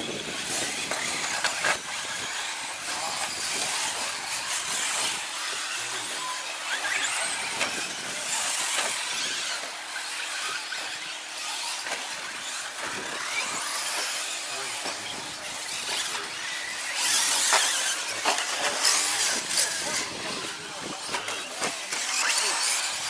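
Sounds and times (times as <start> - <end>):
electric motor whine: 0.0 - 23.0
tyres scrabbling on dirt: 0.0 - 23.0.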